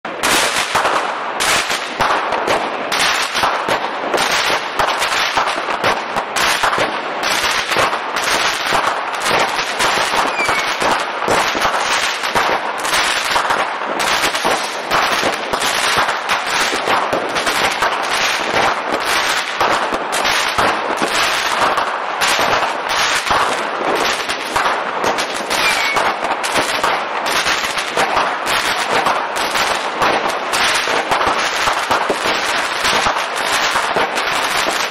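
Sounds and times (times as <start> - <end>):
fireworks bangs and crackling: 0.0 - 34.9.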